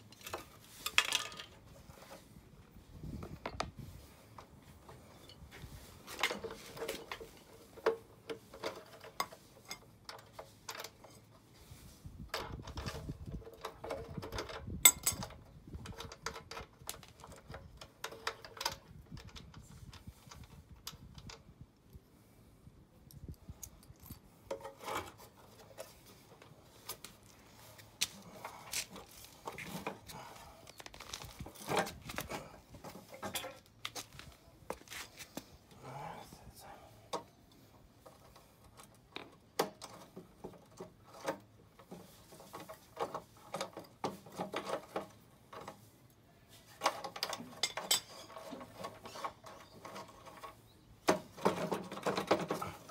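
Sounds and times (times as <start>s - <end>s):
tools clinking and scraping metal: 5.1s - 11.4s, 12.3s - 21.4s, 23.4s - 34.0s, 46.7s - 52.9s.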